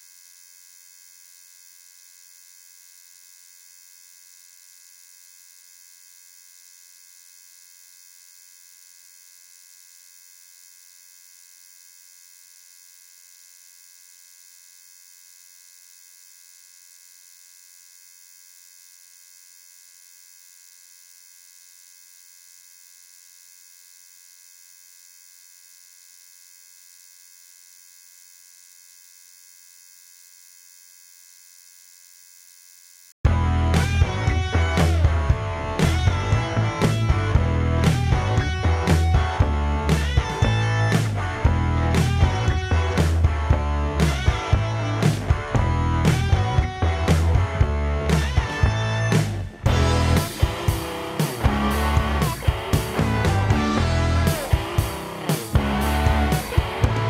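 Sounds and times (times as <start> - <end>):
rock music with guitar: 33.3 - 57.0.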